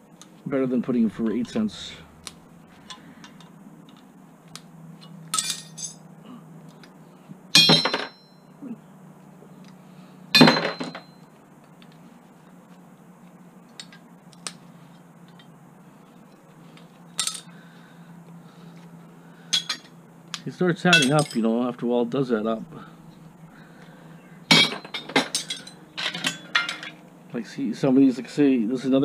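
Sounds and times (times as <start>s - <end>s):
metal fittings clinking and clattering: 24.5s - 27.0s.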